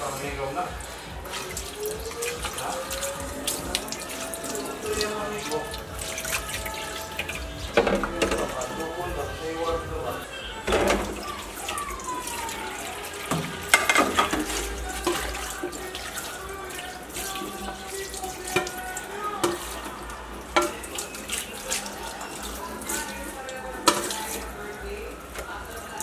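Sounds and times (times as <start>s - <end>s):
tap water running onto plates: 0.0s - 26.0s
plates clinking: 3.8s - 8.8s, 10.6s - 11.3s, 13.2s - 15.9s, 18.5s - 21.6s, 22.9s - 24.4s.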